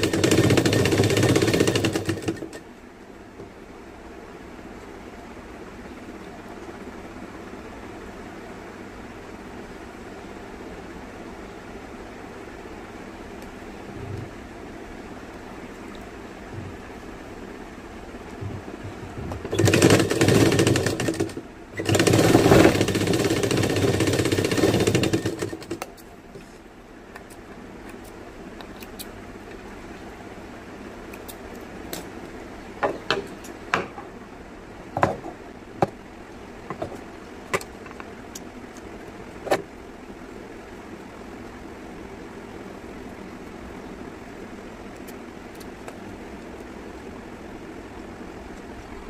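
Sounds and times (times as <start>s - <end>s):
sewing machine stitching: 0.0s - 2.6s, 19.4s - 25.9s.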